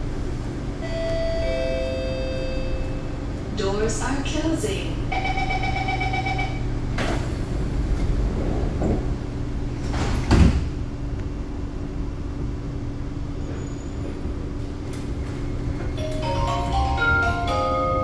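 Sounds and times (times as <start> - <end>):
low train hum: 0.0 - 18.0
beeping door chime: 0.8 - 3.1, 5.1 - 6.6, 16.0 - 18.0
train sliding doors closing: 6.8 - 10.8, 13.4 - 18.0.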